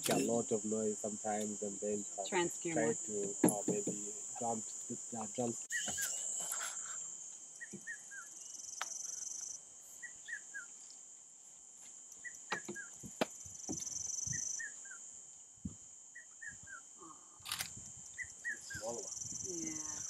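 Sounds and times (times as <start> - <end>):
insects buzzing: 0.0 - 20.0
bird chirping: 1.1 - 7.0, 7.6 - 11.0, 12.2 - 15.0, 16.2 - 16.9, 18.1 - 20.0
soft knocks and thuds: 3.2 - 4.1.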